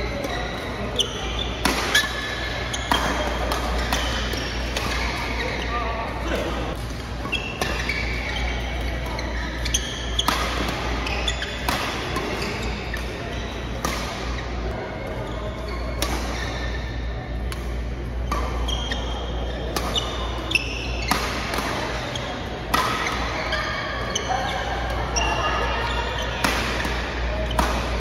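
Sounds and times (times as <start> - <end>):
shoes squeaking on court: 0.0 - 28.0
racket hitting shuttlecock: 0.2 - 5.4, 6.4 - 8.1, 8.7 - 14.5, 15.9 - 16.6, 17.5 - 19.0, 19.6 - 24.0, 26.2 - 28.0.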